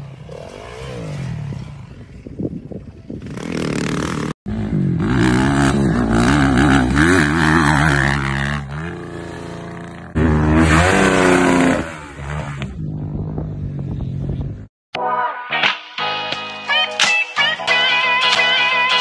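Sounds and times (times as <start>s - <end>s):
dirt bike engine revving: 0.0s - 13.4s
faint dirt bike engine: 0.0s - 14.7s.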